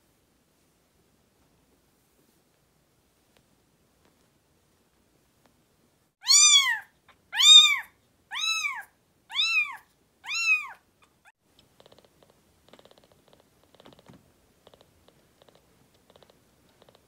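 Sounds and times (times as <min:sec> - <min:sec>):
kitten meowing: 0:06.2 - 0:11.2.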